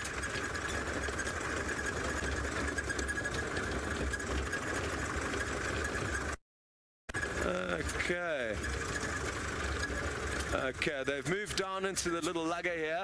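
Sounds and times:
vehicle engine running: 0.0 - 6.4, 7.1 - 13.0
faint high whine: 7.1 - 12.8.

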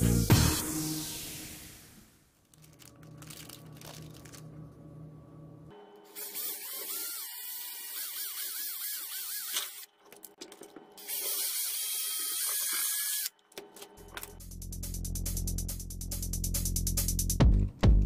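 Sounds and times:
cordless drill boring through wood: 6.2 - 9.8, 11.0 - 13.3.

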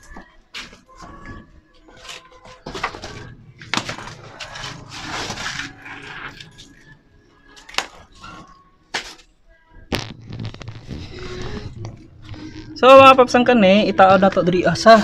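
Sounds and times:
scraping rustle: 3.9 - 6.4.

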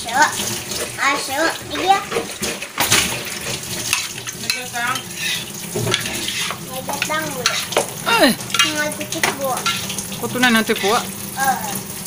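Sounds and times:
tap water running into sink: 0.0 - 12.0
plastic dishes clattering: 0.8 - 9.9.

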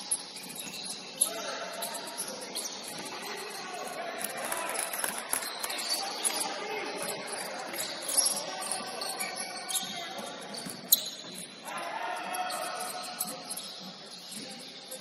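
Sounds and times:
sneakers squeaking on hardwood: 0.0 - 15.0
players calling out: 11.0 - 13.8.

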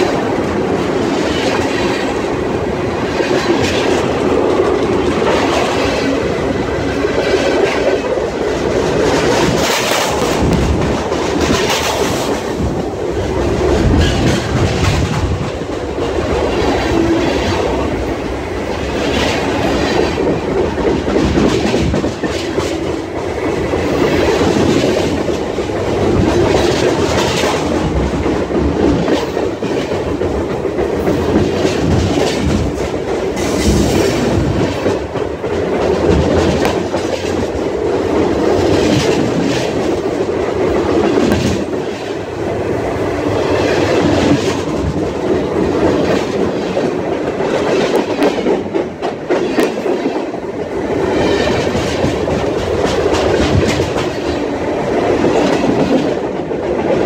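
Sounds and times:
freight train rumbling and rattling: 0.0 - 57.0
train wheels clacking: 0.0 - 57.0.

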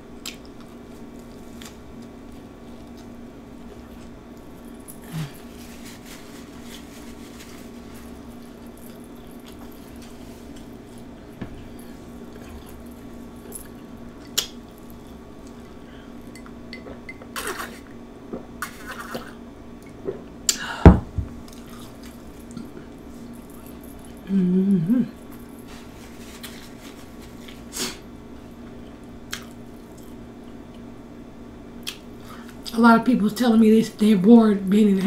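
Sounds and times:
person chewing: 0.2 - 3.2, 13.6 - 20.2, 29.3 - 30.8.

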